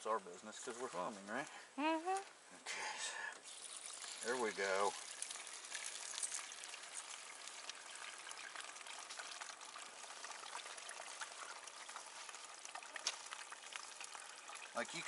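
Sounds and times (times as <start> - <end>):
water pouring into bag: 3.4 - 15.0.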